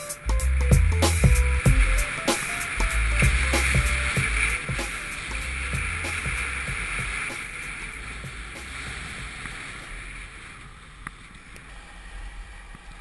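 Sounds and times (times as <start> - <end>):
skis hissing over snow: 0.0 - 13.0
wind buffeting microphone: 0.4 - 11.0.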